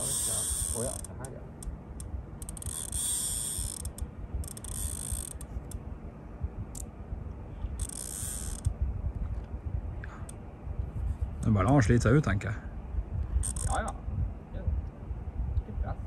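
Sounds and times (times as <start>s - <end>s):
fishing reel drag buzzing: 0.0s - 1.3s, 2.4s - 5.5s, 7.8s - 8.7s, 13.4s - 13.9s
fishing reel clicks: 0.0s - 5.8s, 7.8s - 8.7s, 13.4s - 13.9s
low rumble: 1.0s - 16.0s.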